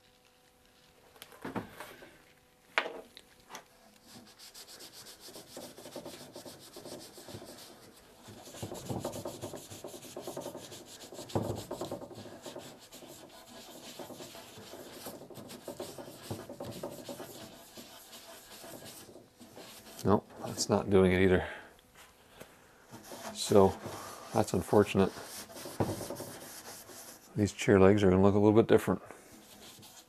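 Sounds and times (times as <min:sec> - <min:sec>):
rag scrubbing wooden chair leg: 0:04.0 - 0:20.8, 0:22.9 - 0:27.3, 0:29.4 - 0:30.0.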